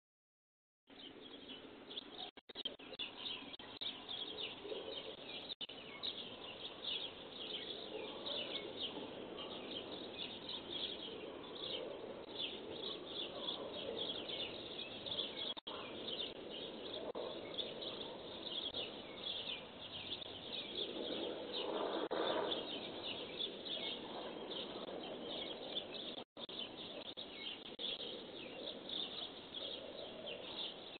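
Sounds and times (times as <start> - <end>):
small birds chirping: 0.9 - 30.9.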